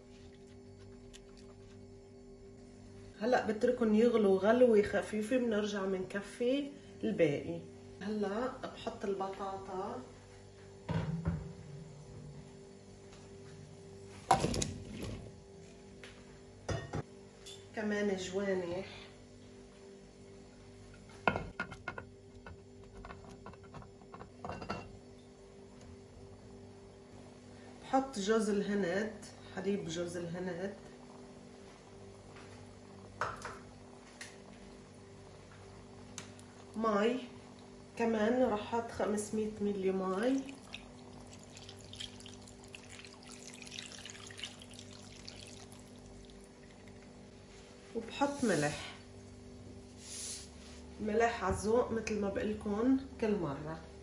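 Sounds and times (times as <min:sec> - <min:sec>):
faint steady hum: 0:00.0 - 0:54.0
plate knocking on a pot: 0:16.7 - 0:17.0
water trickling into a pot: 0:39.2 - 0:47.7.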